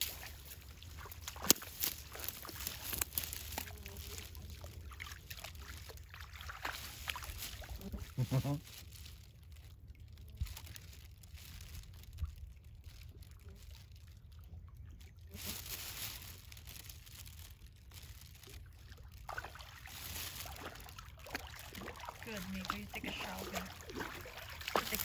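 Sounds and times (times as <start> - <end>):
dog splashing through water: 0.0 - 8.2, 18.9 - 25.0.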